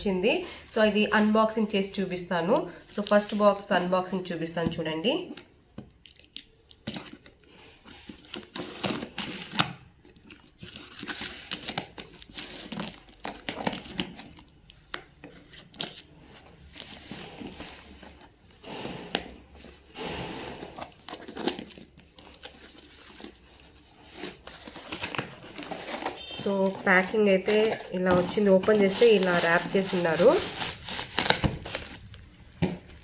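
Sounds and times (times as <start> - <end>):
packaging crinkling and tearing: 5.2 - 18.6, 20.5 - 33.0.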